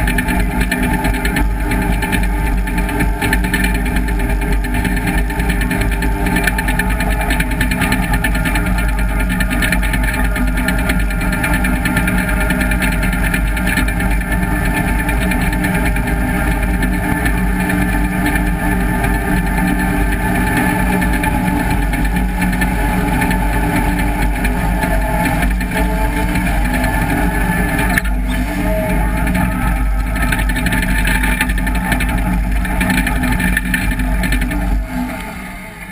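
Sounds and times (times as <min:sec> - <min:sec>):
dozer diesel engine under load: 0:00.0 - 0:35.9.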